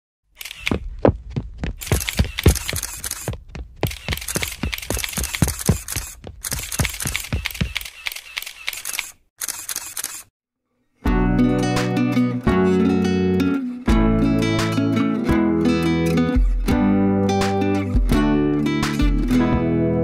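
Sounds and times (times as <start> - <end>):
quick sharp footsteps: 0.4 - 9.0.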